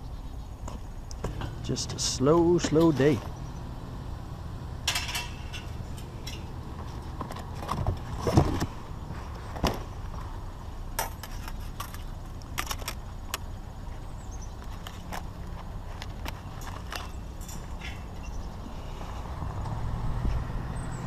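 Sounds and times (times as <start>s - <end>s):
low vehicle hum: 0.0s - 21.0s
rattles clicks and knocks: 1.2s - 3.4s, 4.8s - 8.8s, 10.9s - 13.5s, 14.6s - 18.6s.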